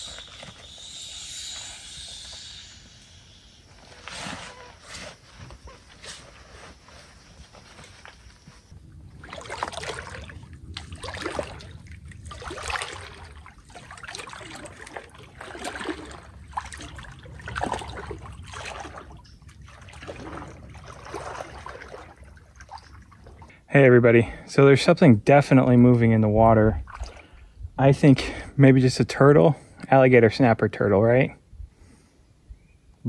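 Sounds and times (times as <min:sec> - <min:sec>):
wading through swamp water: 0:03.0 - 0:23.7, 0:26.5 - 0:27.7.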